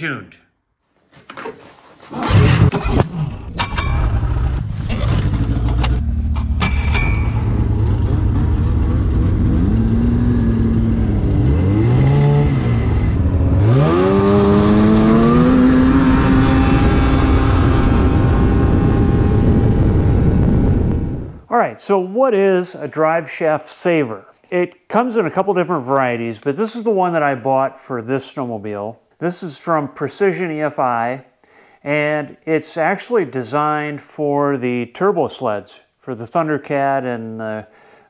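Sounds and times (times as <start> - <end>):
snowmobile engine revving: 2.1 - 3.3, 7.7 - 21.3.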